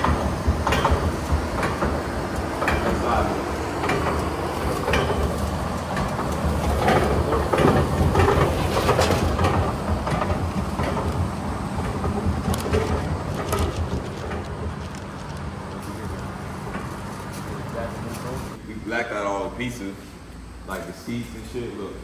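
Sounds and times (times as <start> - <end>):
plastic sheeting crinkling: 12.6 - 18.6.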